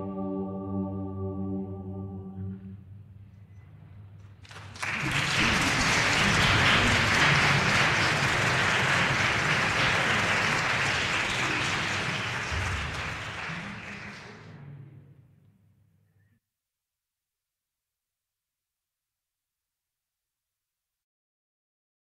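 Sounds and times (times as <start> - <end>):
audience applauding: 4.4 - 14.6.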